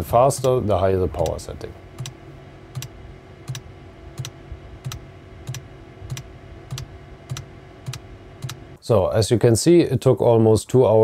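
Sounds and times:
heater pump clicking: 0.0s - 8.8s
steady hum: 0.0s - 9.0s.

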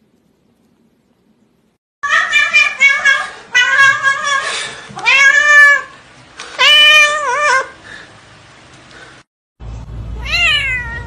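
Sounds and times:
cat meowing loudly: 10.2s - 11.0s.

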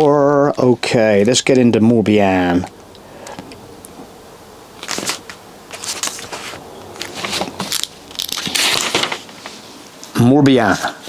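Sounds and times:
book pages flipping: 4.8s - 10.1s.

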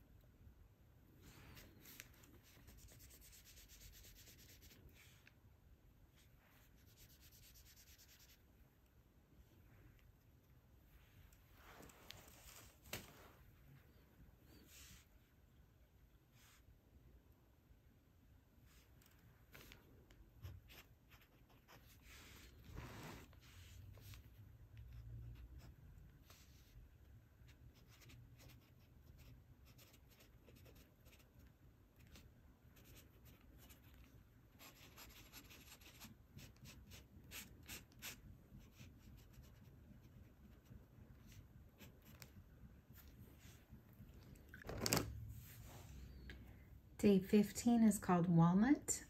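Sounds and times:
pen scratching on paper: 6.7s - 8.4s, 20.4s - 24.2s, 27.7s - 31.4s, 32.8s - 33.9s, 34.6s - 40.6s.

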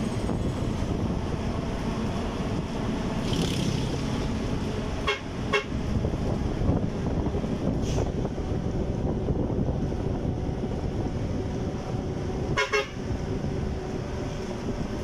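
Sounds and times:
vehicle rumble: 0.0s - 15.0s
wind: 0.0s - 15.0s
horn toot: 12.5s - 13.0s.

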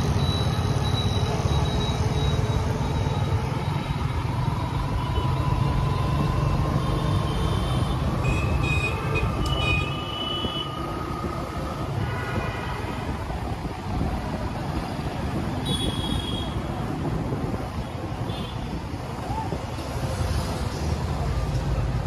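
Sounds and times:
motorcycle engine and road rumble: 0.0s - 22.0s.

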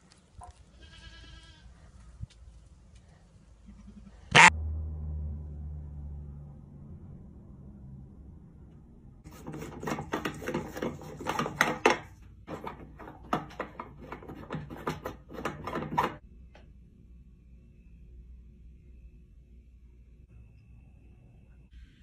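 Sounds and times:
light bulb grinding in socket: 9.3s - 16.2s.

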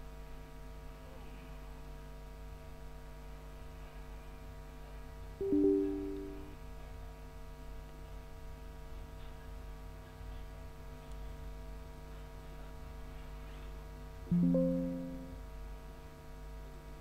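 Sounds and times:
system alert chime: 5.4s - 6.5s, 14.3s - 15.4s
steady low hum: 14.2s - 15.6s.

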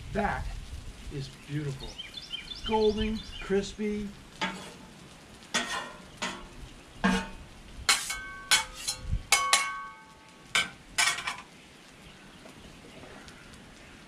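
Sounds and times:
potatoes sizzling in oil: 0.0s - 14.0s
metal spatulas scraping on griddle: 4.4s - 4.9s, 5.5s - 9.9s, 10.6s - 11.4s.

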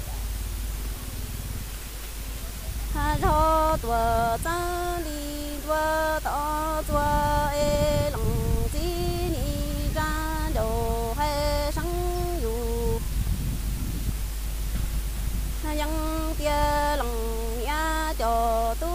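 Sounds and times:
faint low hum: 0.0s - 18.9s
woman singing unaccompanied: 2.9s - 13.2s, 15.6s - 18.9s.

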